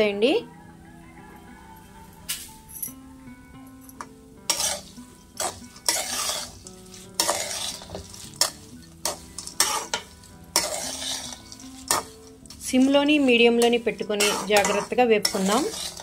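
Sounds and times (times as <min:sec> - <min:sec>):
metal spatula scraping seeds: 0:04.5 - 0:16.0
seeds rattling against pan: 0:05.4 - 0:16.0.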